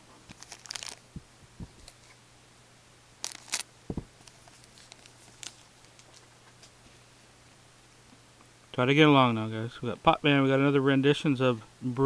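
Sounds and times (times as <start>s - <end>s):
faint steady hum: 0.0s - 12.0s
dull thump: 3.9s - 4.1s.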